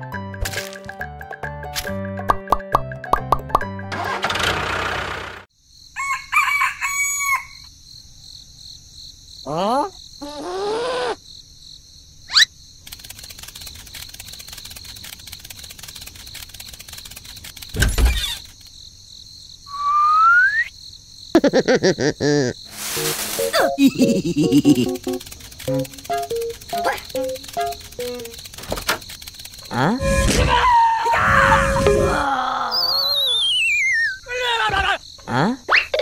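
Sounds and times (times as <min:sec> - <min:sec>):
rooster crowing: 0:06.0 - 0:07.7
sliding whistles: 0:19.7 - 0:20.7, 0:30.0 - 0:32.2, 0:32.8 - 0:34.2
steady high background tone: 0:23.0 - 0:30.5.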